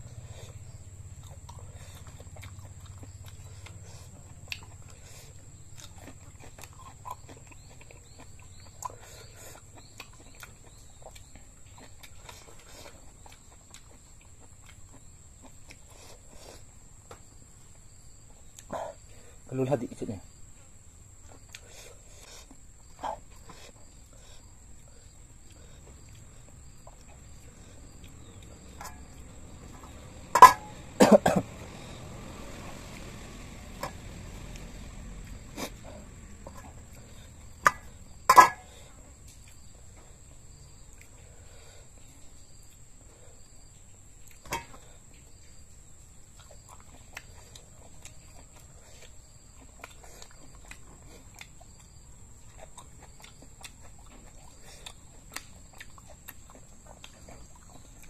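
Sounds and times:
person chewing with mouth smacks: 0.0s - 17.3s, 17.9s - 19.2s, 21.2s - 32.1s, 33.8s - 58.0s.

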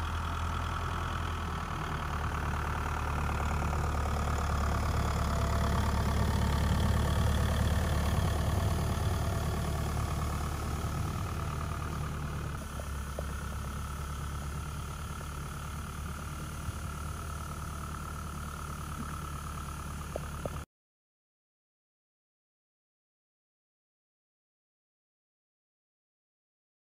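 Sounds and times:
tractor diesel engine running: 0.0s - 20.7s.

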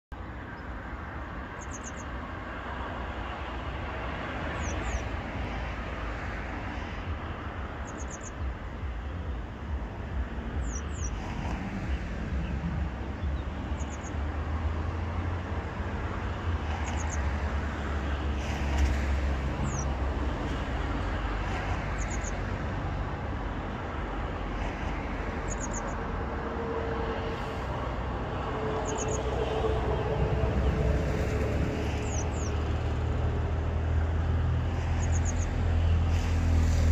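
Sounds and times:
low traffic rumble: 0.1s - 36.9s
small bird chirping: 1.6s - 2.1s, 4.6s - 5.1s, 7.8s - 8.4s, 10.6s - 11.2s, 13.2s - 14.2s, 16.8s - 17.2s, 22.0s - 22.4s, 25.5s - 26.0s, 28.8s - 29.2s, 32.0s - 32.5s, 35.0s - 35.6s.

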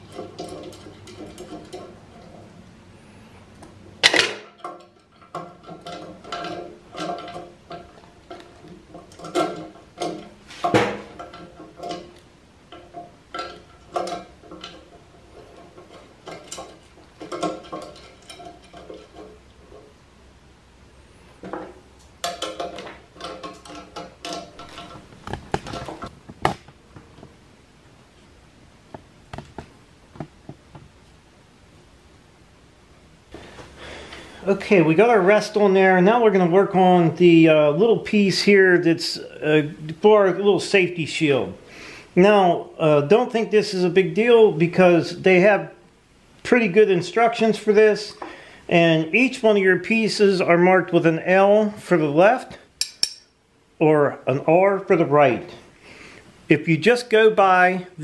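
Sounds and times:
metal clinks and knocks: 0.0s - 2.5s, 4.1s - 19.9s, 52.8s - 53.4s.

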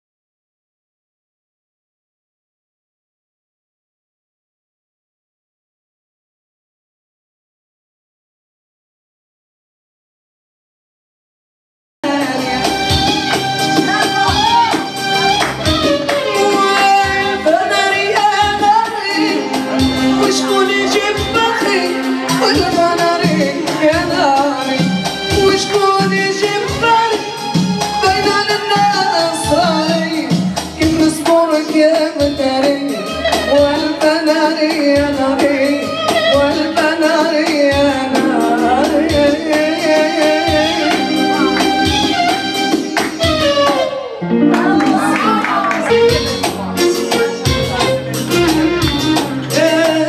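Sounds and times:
woman singing into microphone: 12.0s - 50.0s
steady percussion beat: 12.2s - 44.0s, 44.6s - 50.0s.

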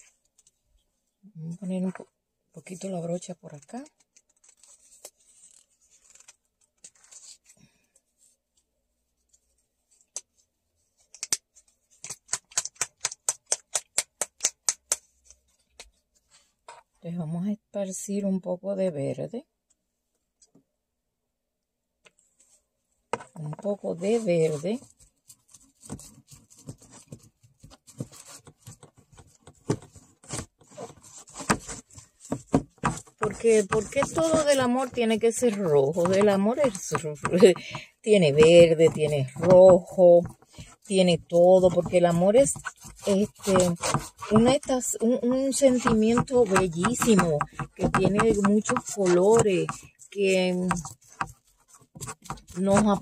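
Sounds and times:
scratchy handling of plastic bottle: 22.2s - 53.0s
paintbrush scrubbing: 33.1s - 53.0s.

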